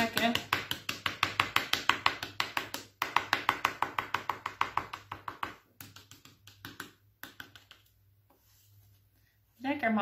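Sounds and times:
palette knife tapping wet paint: 0.0s - 8.0s.

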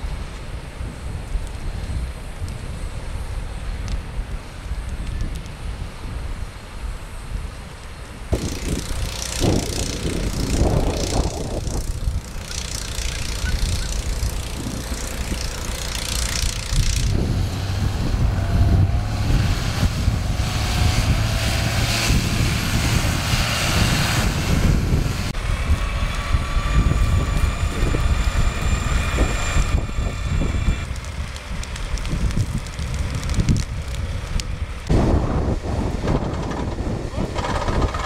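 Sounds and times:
gusty low rumble: 0.0s - 38.0s
steady high-pitched whines: 7.9s - 17.4s
fire truck engine running: 8.3s - 38.0s.

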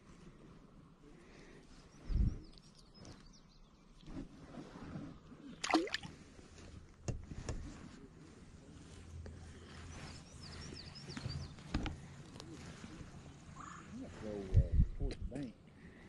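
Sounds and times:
faint birds chirping: 0.2s - 4.3s, 8.6s - 16.0s.

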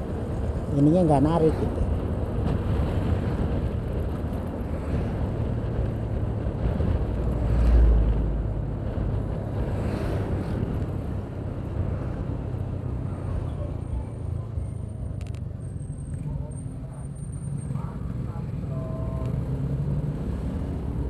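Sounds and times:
wind buffeting microphone: 1.4s - 12.9s.

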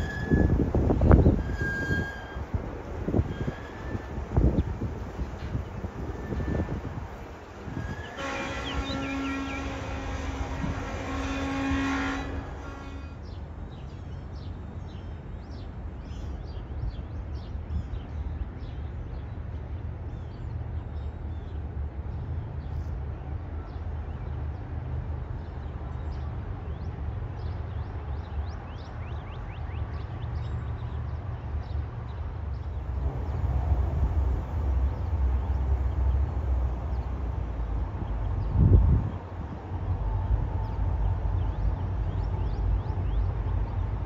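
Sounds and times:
distant locomotive horn: 0.0s - 4.5s, 6.0s - 13.3s.

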